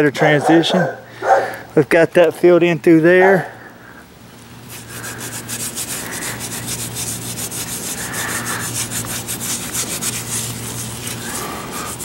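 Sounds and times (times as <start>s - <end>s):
hand scraping rough concrete: 4.6s - 12.0s.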